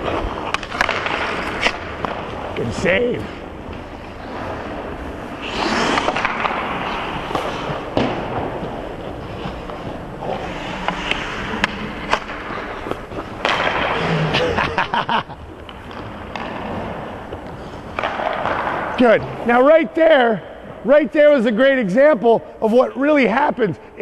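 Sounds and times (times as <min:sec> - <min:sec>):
hockey sticks hitting puck: 0:00.0 - 0:23.6
ice skates scraping on ice: 0:03.2 - 0:18.8.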